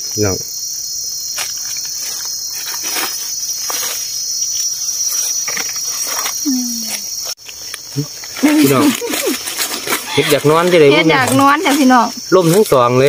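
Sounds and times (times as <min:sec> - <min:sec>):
chorus of forest insects: 0:00.0 - 0:13.0
footsteps rustling dry leaves: 0:01.3 - 0:04.7, 0:07.3 - 0:13.0.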